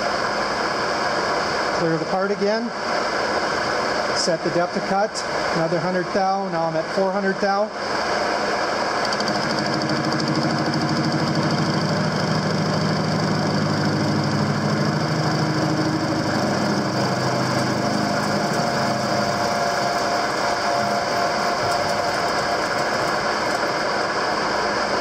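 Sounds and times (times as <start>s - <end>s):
metal lathe running: 8.8s - 25.0s.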